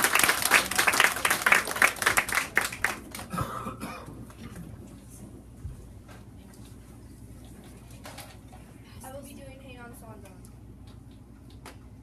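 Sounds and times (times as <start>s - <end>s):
audience clapping: 0.0s - 3.4s.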